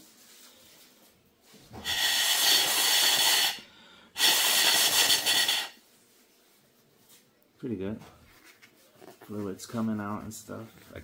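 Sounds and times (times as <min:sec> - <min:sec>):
compressed air hissing: 0:01.8 - 0:05.8.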